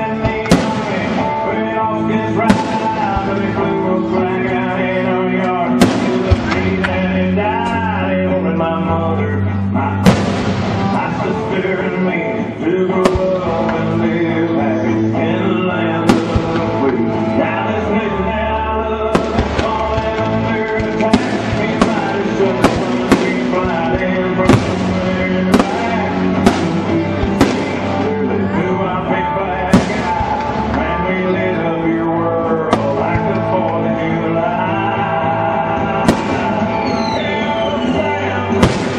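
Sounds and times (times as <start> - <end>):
loud music: 0.0 - 38.9
fireworks bangs: 0.1 - 1.7, 2.3 - 3.8, 5.7 - 7.3, 10.0 - 12.0, 13.0 - 14.2, 16.0 - 17.2, 19.1 - 28.3, 29.7 - 31.3, 32.7 - 33.6, 35.8 - 38.9.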